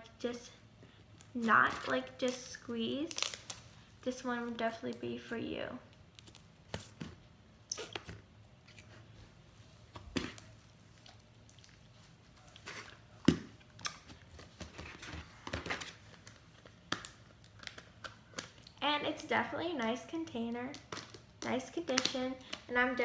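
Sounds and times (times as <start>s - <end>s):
slime squelching: 5.9s - 18.8s.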